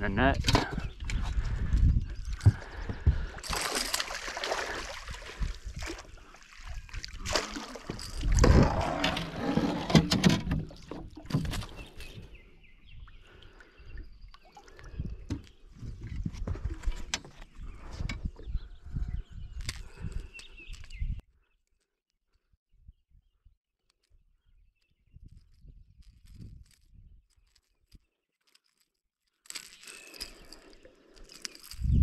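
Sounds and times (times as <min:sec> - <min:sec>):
landing net scooping water: 0:03.4 - 0:12.0.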